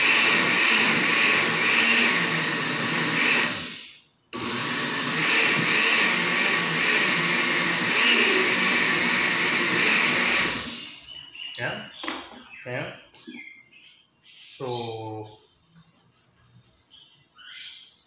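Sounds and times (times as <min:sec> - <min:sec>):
electric blender running: 0:00.0 - 0:11.0.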